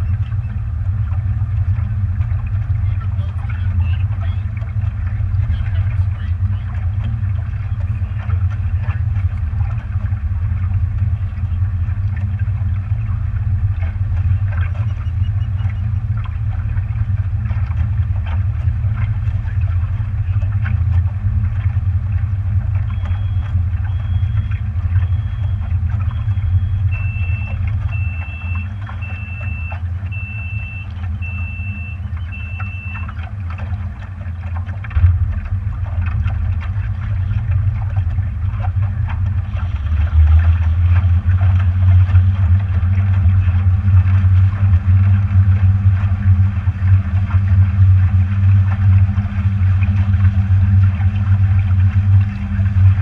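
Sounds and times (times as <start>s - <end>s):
motorboat engine drone: 0.0s - 53.0s
short electronic beeps: 22.9s - 33.2s.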